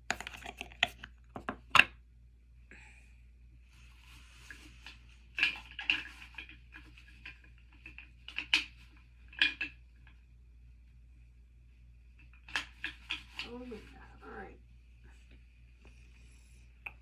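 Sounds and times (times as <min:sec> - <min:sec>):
small containers clattering: 0:00.0 - 0:01.8, 0:04.5 - 0:10.2.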